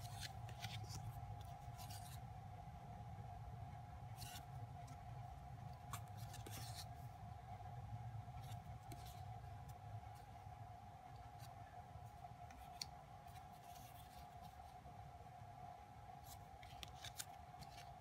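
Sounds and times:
photocards rustling and sliding: 0:00.0 - 0:02.3, 0:04.1 - 0:07.2, 0:08.3 - 0:10.5, 0:11.2 - 0:14.8, 0:16.2 - 0:18.0
faint steady hum: 0:00.0 - 0:18.0.

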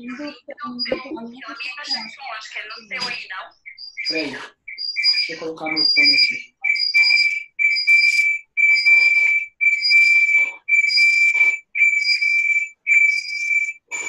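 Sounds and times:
audio feedback squeal: 0:02.8 - 0:14.0.

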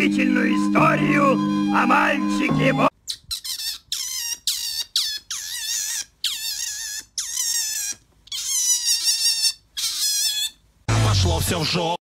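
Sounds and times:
otter squealing: 0:02.8 - 0:10.6.

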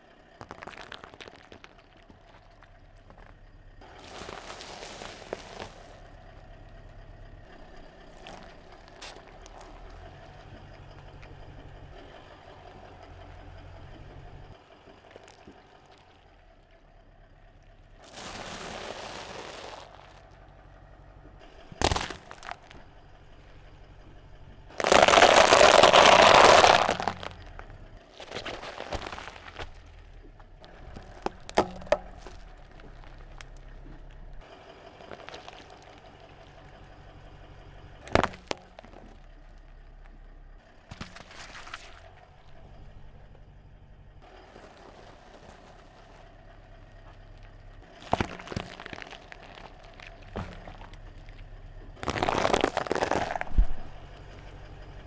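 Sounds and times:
car engine hum: 0:00.0 - 0:55.0
tyre crushing brittle food: 0:03.9 - 0:06.0, 0:08.1 - 0:10.0, 0:18.0 - 0:20.3, 0:21.8 - 0:22.8, 0:24.8 - 0:27.4, 0:28.1 - 0:30.0, 0:35.0 - 0:36.2, 0:38.1 - 0:39.2, 0:48.0 - 0:51.4, 0:52.0 - 0:53.9.

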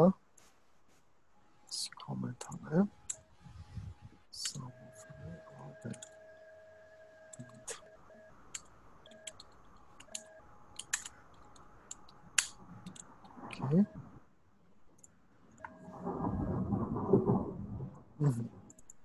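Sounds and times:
keyboard keystrokes: 0:08.5 - 0:13.1.

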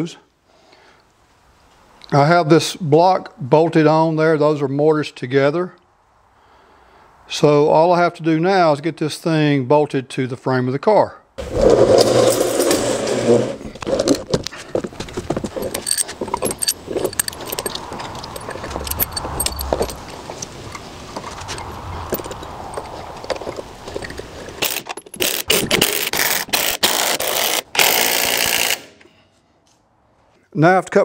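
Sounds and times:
bolts and washers clinking: 0:11.4 - 0:26.7
impact driver bursts: 0:25.2 - 0:29.1.

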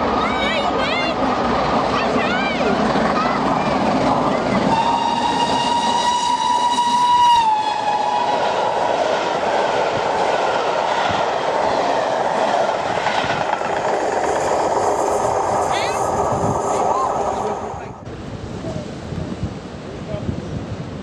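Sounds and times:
train wheels rumbling on rails: 0:00.0 - 0:19.6
steam locomotive whistle: 0:04.7 - 0:08.8.

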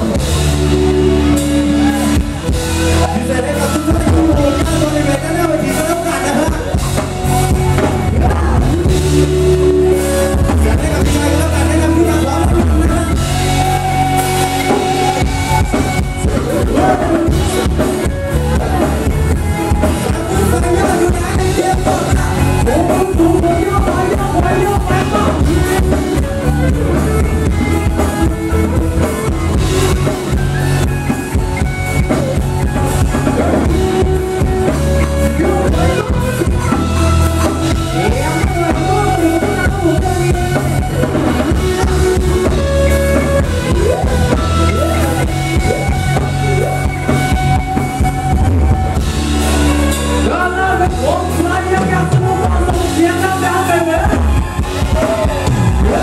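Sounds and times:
singer: 0:00.0 - 0:27.3, 0:49.6 - 0:56.0
drum kit: 0:00.0 - 0:56.0
electric guitar: 0:00.0 - 0:56.0.

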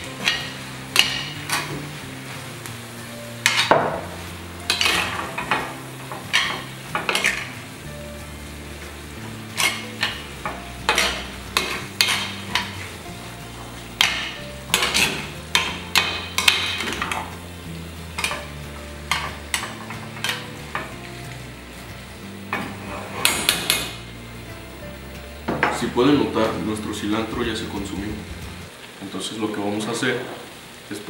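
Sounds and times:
food frying: 0:00.0 - 0:31.0
metal spoon scraping a skillet: 0:00.1 - 0:01.8, 0:03.4 - 0:03.8, 0:04.6 - 0:07.6, 0:09.4 - 0:12.9, 0:13.9 - 0:17.3, 0:18.1 - 0:18.5.

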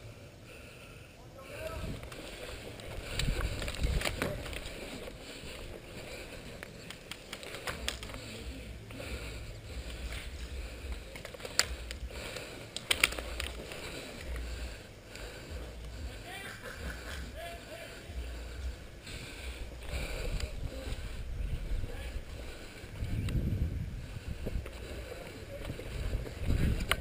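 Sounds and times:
sharp clicks: 0:06.5 - 0:08.3, 0:10.9 - 0:14.5.

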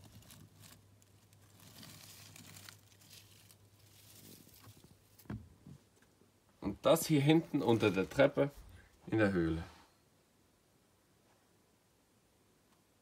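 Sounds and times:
faint rustling and crinkling: 0:00.0 - 0:10.0.

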